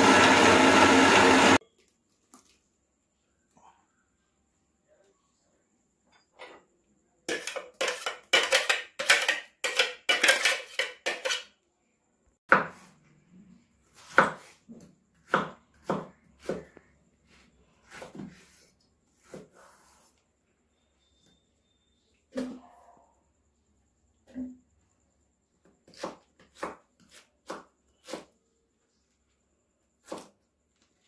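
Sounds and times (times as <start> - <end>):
spoon scraping metal blender jar: 7.3 - 11.5
knife chopping on wooden board: 12.5 - 12.9, 14.0 - 14.6, 15.2 - 16.8, 25.8 - 28.3, 30.0 - 30.3.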